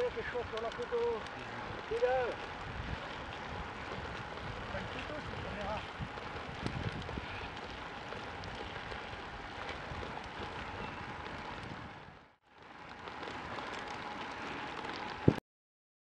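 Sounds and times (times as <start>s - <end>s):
bicycle tyres rolling on road: 0.0s - 15.4s
wind on microphone: 2.6s - 7.8s.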